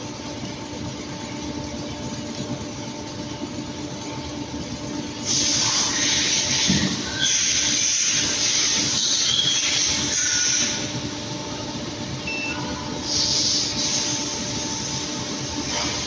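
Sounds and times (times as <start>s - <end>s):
air compressor running: 5.1s - 16.0s
loud hiss of air: 5.2s - 10.9s, 13.0s - 16.0s.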